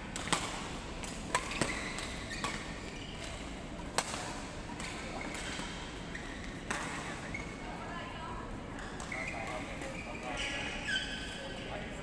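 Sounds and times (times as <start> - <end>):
badminton racket hitting shuttlecock: 0.2 - 2.6.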